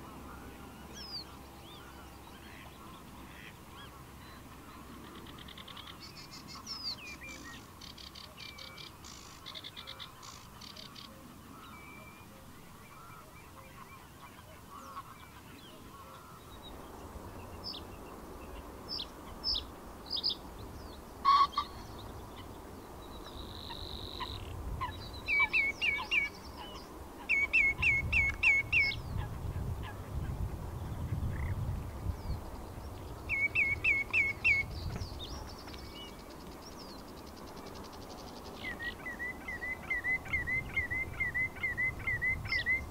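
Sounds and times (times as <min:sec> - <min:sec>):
bird chirping song: 0:00.0 - 0:42.9
bird call notes: 0:23.2 - 0:29.0, 0:33.3 - 0:42.9.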